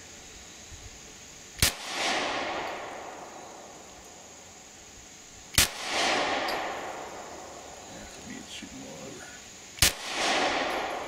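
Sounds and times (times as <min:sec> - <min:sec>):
pistol shot with echo: 0:01.6 - 0:03.4, 0:05.5 - 0:07.6, 0:09.8 - 0:11.0.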